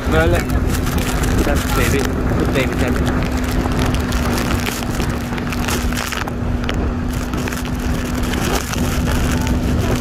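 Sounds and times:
jet ski engine hum: 0.0 - 10.0
wind buffeting microphone: 0.0 - 10.0.

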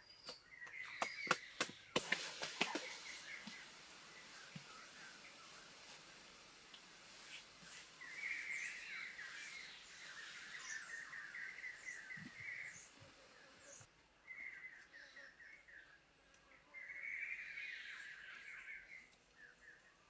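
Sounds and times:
small birds trilling: 0.0 - 16.0
hands smoothing wet mud: 1.3 - 11.1.

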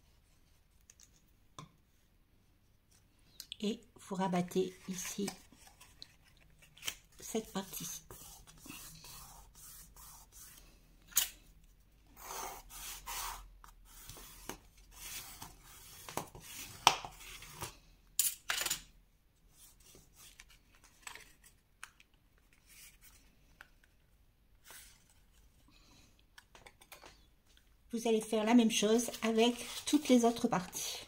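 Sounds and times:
stick rubbing along paper fold: 7.3 - 10.7.

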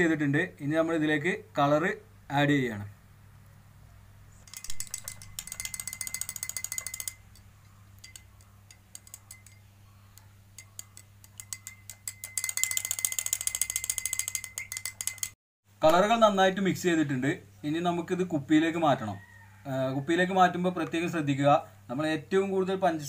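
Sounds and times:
metal spoon clinking against glass: 4.5 - 15.4.

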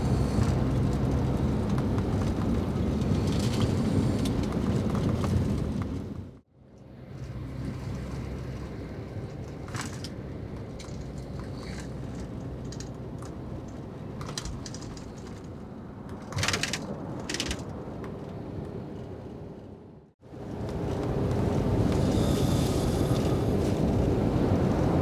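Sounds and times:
bus engine and road drone: 0.0 - 25.0
light clicks and rattles: 9.2 - 19.4.

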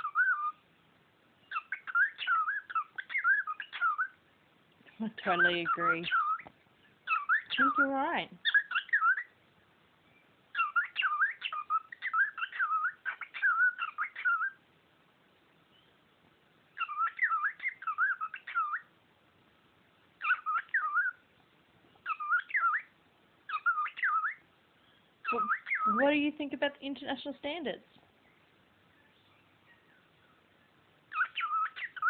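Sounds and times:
cockatiel whistling and warbling: 0.0 - 0.6, 1.5 - 4.2, 5.3 - 9.4, 10.5 - 14.6, 16.8 - 18.9, 20.2 - 21.2, 22.0 - 22.9, 23.5 - 24.4, 25.2 - 26.0, 31.1 - 32.0.

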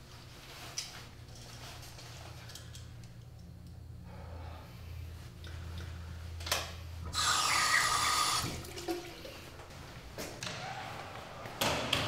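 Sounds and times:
water rushing through plumbing: 7.1 - 9.7.

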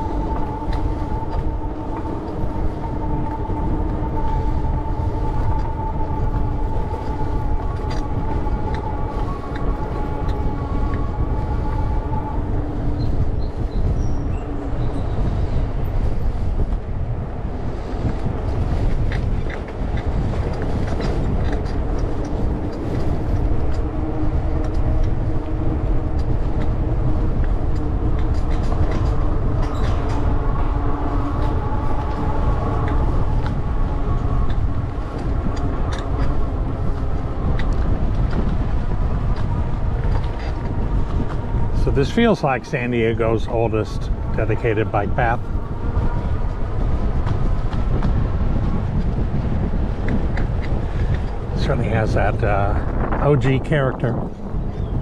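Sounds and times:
steady whine: 0.0 - 54.6
wind rumble on microphone: 0.0 - 55.0.

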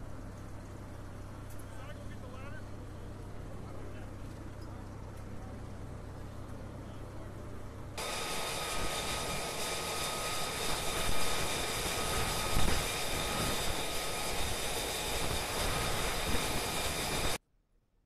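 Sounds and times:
high jet whine: 7.9 - 17.4
jet engine roaring: 8.0 - 17.4.

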